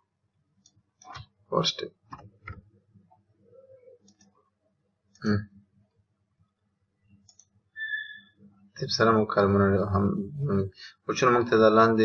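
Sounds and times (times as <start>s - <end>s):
computer mouse clicks: 4.0s - 4.4s, 7.2s - 7.5s
faint low hum: 8.5s - 12.0s.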